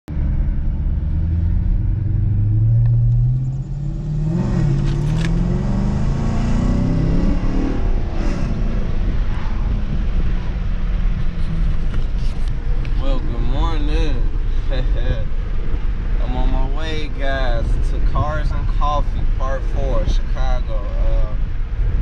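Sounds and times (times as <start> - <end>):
car engine accelerating: 0.1 - 22.0.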